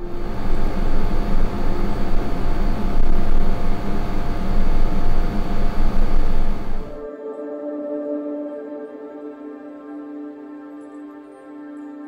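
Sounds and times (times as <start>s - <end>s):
air conditioner running: 0.0s - 7.0s.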